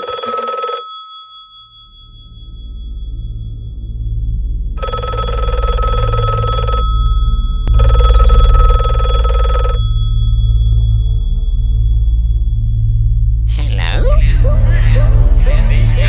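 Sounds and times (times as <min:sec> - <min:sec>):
telephone bell ringing: 0:00.0 - 0:02.3, 0:04.8 - 0:10.8
low steady hum: 0:01.5 - 0:16.0.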